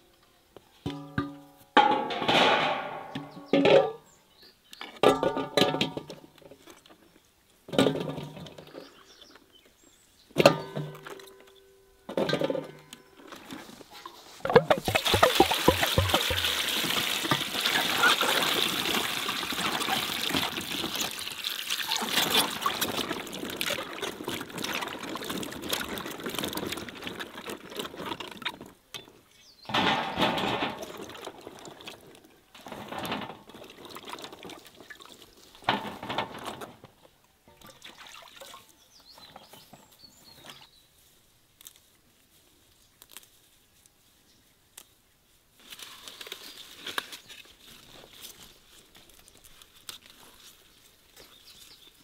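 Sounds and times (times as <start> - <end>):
peppers clunking into basin: 14.4 - 18.8
water splashing: 14.4 - 27.8, 37.5 - 38.7
water pouring into basin: 14.8 - 27.8, 37.6 - 38.6.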